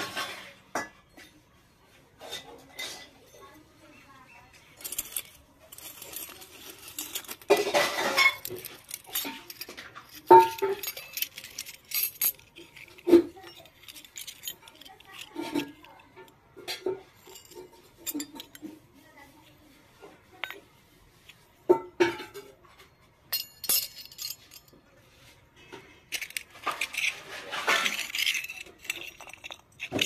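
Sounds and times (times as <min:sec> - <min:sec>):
metal utensils clinking on concrete: 0:00.0 - 0:01.6, 0:02.2 - 0:30.0
metal utensils jangling: 0:04.8 - 0:18.8, 0:20.4 - 0:20.6, 0:23.3 - 0:24.8, 0:25.7 - 0:30.0.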